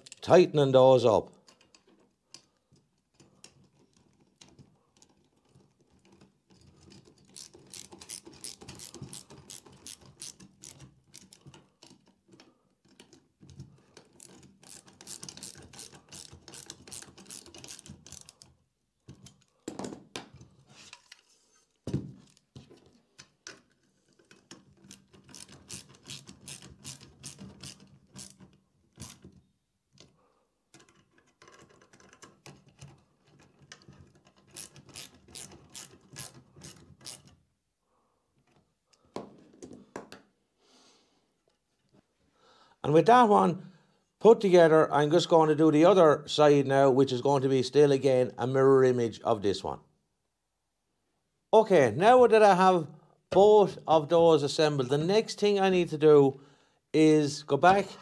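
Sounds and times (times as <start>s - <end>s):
ratcheting screwdriver clicking: 6.9s - 12.0s, 14.0s - 18.4s, 24.2s - 29.3s, 34.3s - 37.3s.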